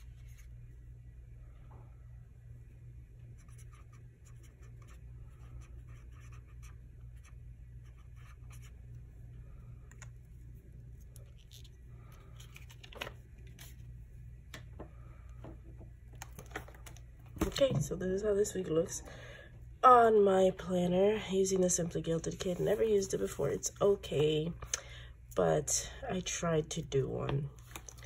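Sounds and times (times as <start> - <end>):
steady low hum: 0.0 - 28.0
pen scratching on paper: 3.4 - 8.8.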